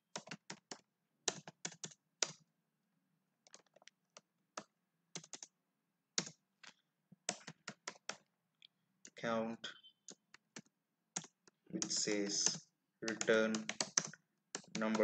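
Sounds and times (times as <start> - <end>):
computer keyboard typing: 0.0 - 2.4, 3.4 - 5.6, 6.2 - 8.3, 10.1 - 15.0.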